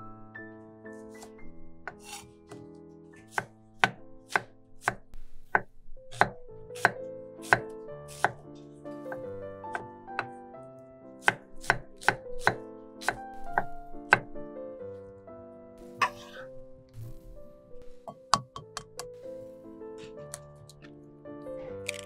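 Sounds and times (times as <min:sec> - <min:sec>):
soft background music: 0:00.0 - 0:22.0
knife chopping on wooden board: 0:01.9 - 0:08.4, 0:11.2 - 0:14.3.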